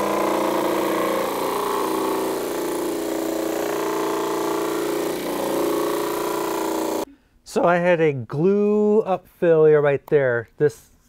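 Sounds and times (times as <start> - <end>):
disc sander motor hum: 0.0 - 7.1
wood sanding on disc: 0.0 - 7.1.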